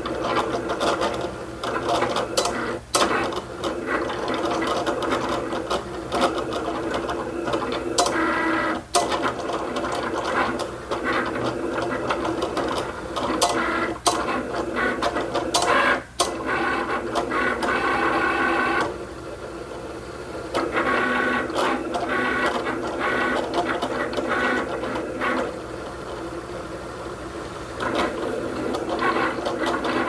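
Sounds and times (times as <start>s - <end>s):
machine clicks: 0.0s - 18.9s
cutting machine motors whirring: 0.0s - 30.0s.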